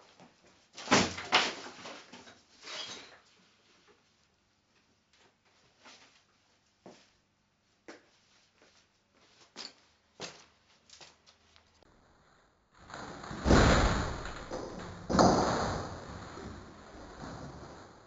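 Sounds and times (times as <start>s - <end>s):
heavy body thuds: 12.9s - 17.9s.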